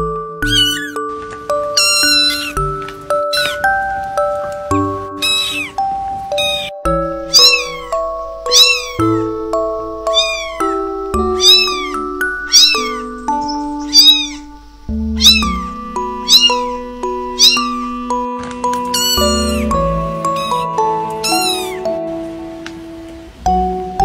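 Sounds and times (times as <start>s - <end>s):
background music of held notes: 0.0s - 24.0s
kittens mewing: 0.4s - 1.1s, 1.7s - 2.7s, 3.3s - 3.8s, 4.4s - 18.2s, 18.9s - 22.0s.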